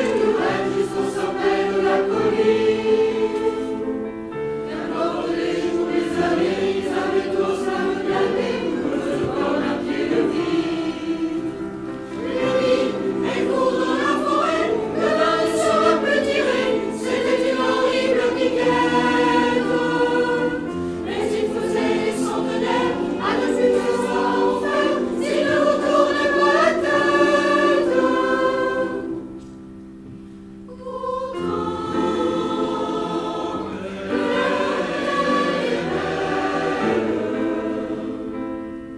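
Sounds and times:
mixed choir singing in harmony: 0.0 - 29.6, 30.7 - 38.9.

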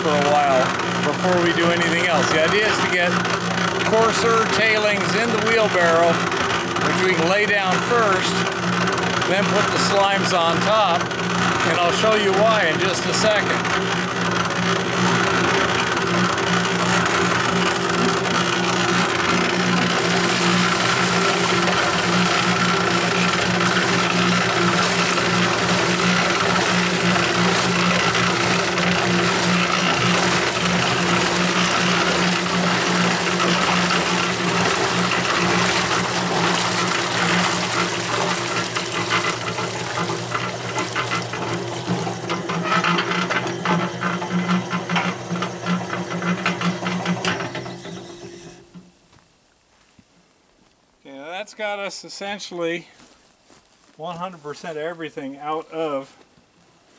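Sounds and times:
slurry pouring into wheelbarrow: 0.0 - 43.2
cement mixer running: 0.0 - 48.8.

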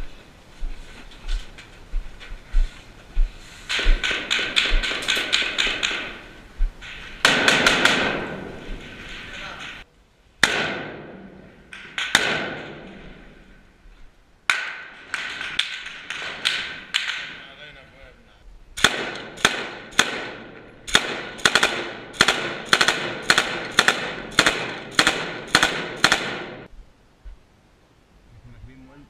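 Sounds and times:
rifle shots with echo: 3.7 - 9.8, 10.4 - 13.4, 14.5 - 17.5, 18.8 - 26.7.

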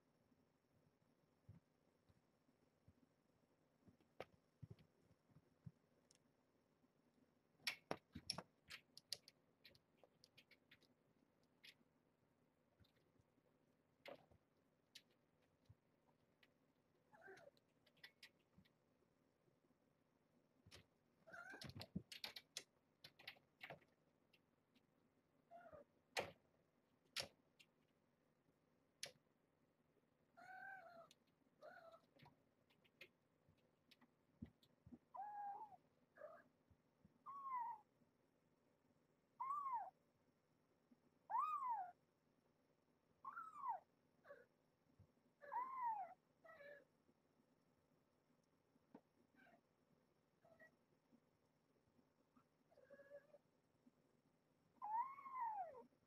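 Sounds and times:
kittens clicking on wire pen: 7.6 - 11.9, 17.3 - 18.8, 20.7 - 24.5.

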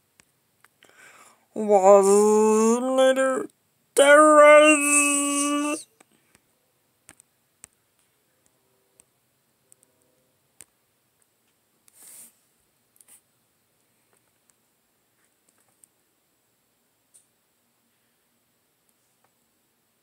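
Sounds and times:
drawn-out male voice: 1.6 - 5.8
rustle: 9.7 - 16.0.

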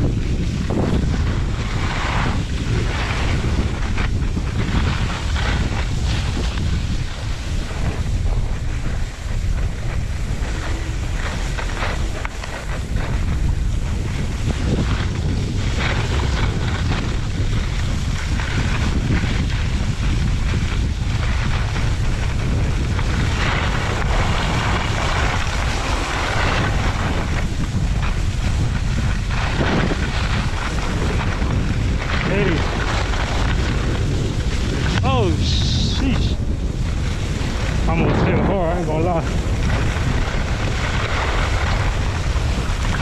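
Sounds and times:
skis scraping on snow: 0.0 - 43.0
wind buffeting microphone: 0.0 - 43.0.

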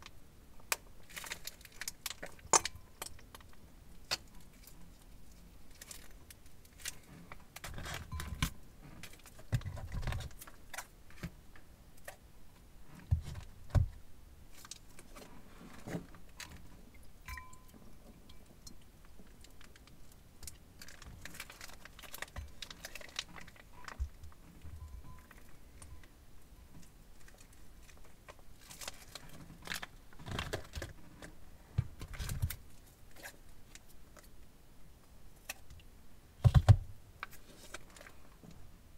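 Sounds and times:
plastic piping bag crinkling: 19.4 - 24.3.

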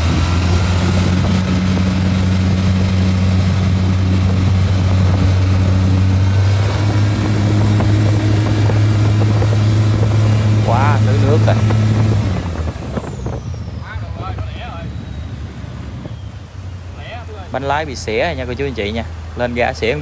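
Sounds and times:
diesel boat engine droning: 0.0 - 20.0.

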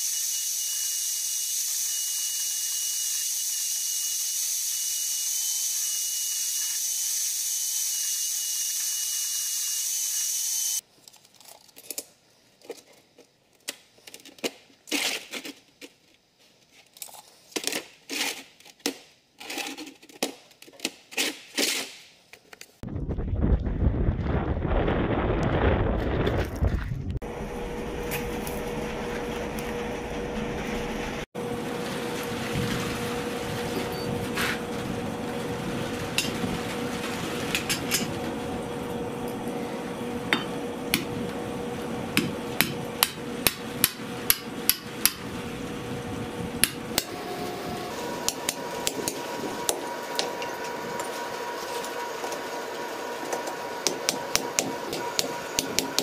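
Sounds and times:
hammer striking anvil: 42.2 - 45.2.

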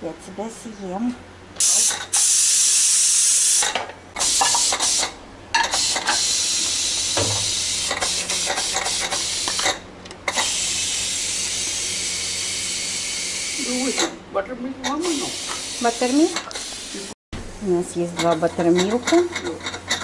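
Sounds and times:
pressure cooker venting steam: 1.6 - 14.2, 14.8 - 17.2.

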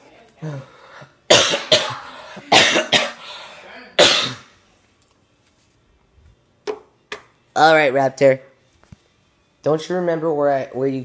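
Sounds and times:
person coughing: 1.3 - 3.3, 4.0 - 4.5.

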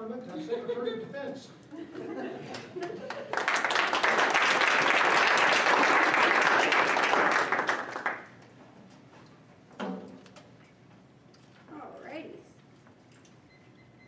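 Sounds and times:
applause: 2.8 - 8.4.

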